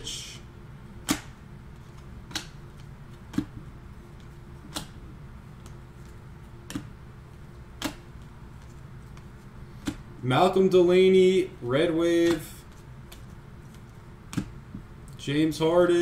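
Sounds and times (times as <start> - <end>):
cards clicking as flipped: 1.0 - 3.5, 4.2 - 5.0, 7.8 - 10.0, 12.2 - 14.6.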